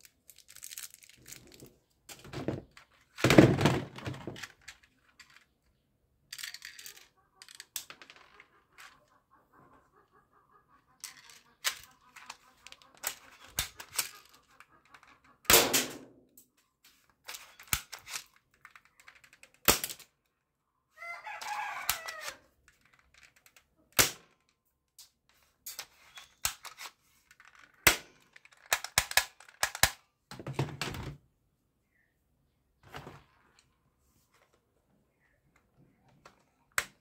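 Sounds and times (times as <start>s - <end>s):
toy gun plastic clicks: 0.0s - 1.7s, 6.3s - 9.0s, 11.0s - 20.1s, 21.8s - 30.1s.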